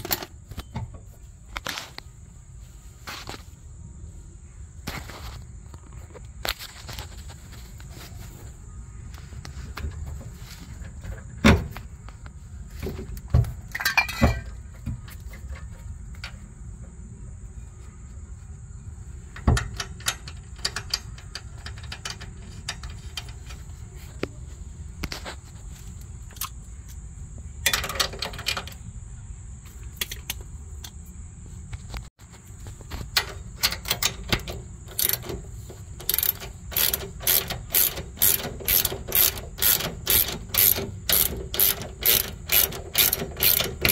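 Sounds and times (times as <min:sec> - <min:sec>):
metal tools clicking and knocking: 0:13.7 - 0:16.4, 0:19.4 - 0:23.7, 0:27.6 - 0:28.8, 0:33.1 - 0:43.9
socket ratchet clicking: 0:33.2 - 0:35.4, 0:36.0 - 0:43.9.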